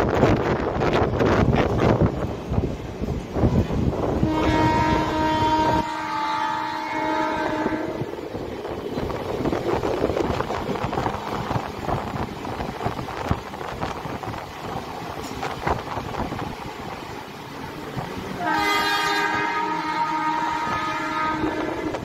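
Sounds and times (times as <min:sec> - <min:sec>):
moving train rumble and clatter: 0:00.0 - 0:22.0
train horn blast: 0:04.2 - 0:08.2, 0:18.3 - 0:22.0.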